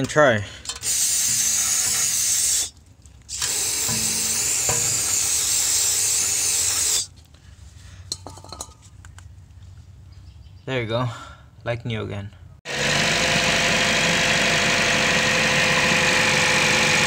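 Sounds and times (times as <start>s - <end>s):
aerosol spray can hissing: 0.8s - 2.7s, 3.3s - 7.1s.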